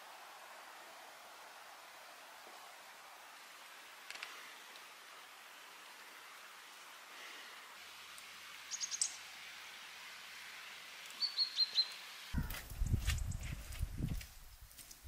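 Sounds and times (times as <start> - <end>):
steady outdoor hiss: 0.0 - 15.0
small bird chirping: 8.6 - 9.3, 11.1 - 13.8.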